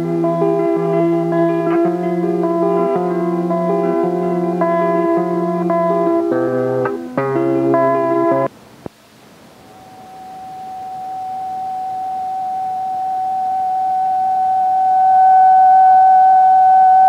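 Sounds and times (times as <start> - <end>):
steady pure tone: 0.0 - 17.0
tape hiss: 0.0 - 17.0.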